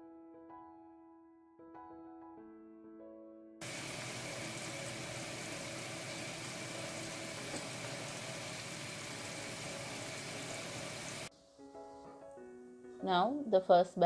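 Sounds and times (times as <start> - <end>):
battered food deep-frying in oil: 3.6 - 11.3.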